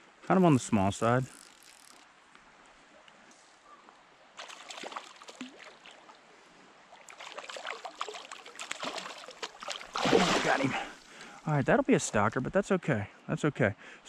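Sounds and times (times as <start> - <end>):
fish splashing in water: 4.4 - 6.2, 6.9 - 10.9.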